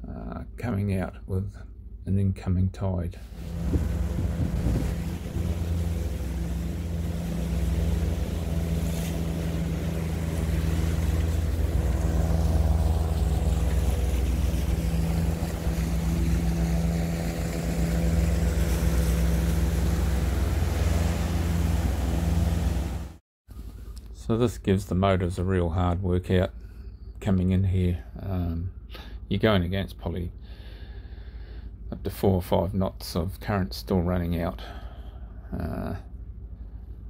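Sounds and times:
boat motors running under load: 3.2s - 23.2s.

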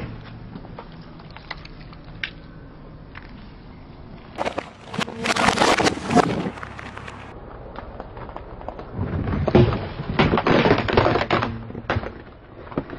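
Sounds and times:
tyre crushing objects: 4.4s - 7.3s, 8.6s - 12.9s.

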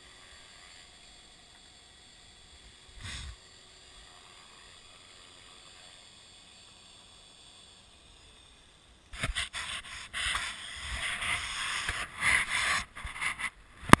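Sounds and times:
faint steady hiss: 0.0s - 14.0s
camera handling rubbing and scraping: 9.2s - 14.0s.

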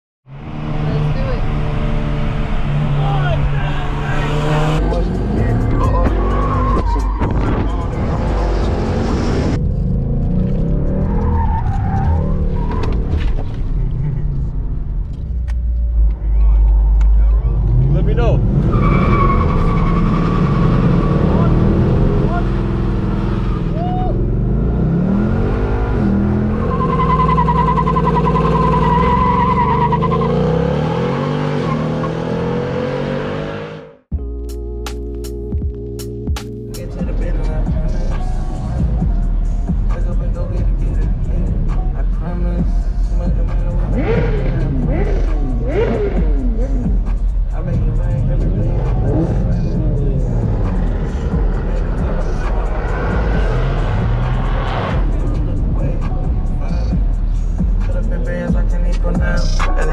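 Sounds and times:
sports car engines revving: 0.3s - 34.1s, 36.7s - 59.9s
music: 4.8s - 9.0s, 34.1s - 59.9s.

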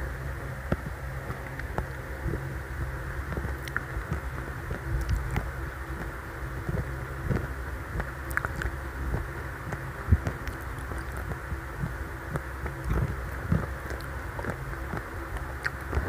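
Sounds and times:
chewing: 3.3s - 16.0s
mouth clicks: 3.3s - 16.0s.

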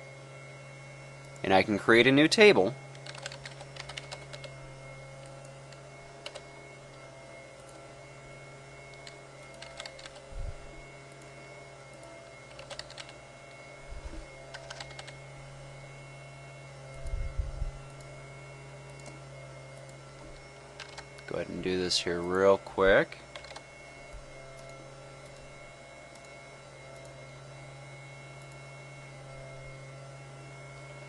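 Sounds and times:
steady low hum: 0.0s - 31.0s
keyboard keystroke clicks: 2.9s - 4.6s, 5.2s - 6.5s, 8.9s - 10.3s, 12.5s - 13.2s, 14.5s - 15.2s, 20.8s - 21.3s, 23.3s - 23.7s.

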